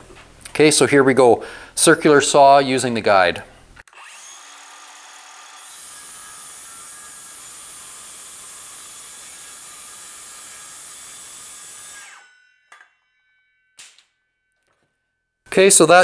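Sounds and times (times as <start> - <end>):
circular saw winding down: 3.9 - 13.7.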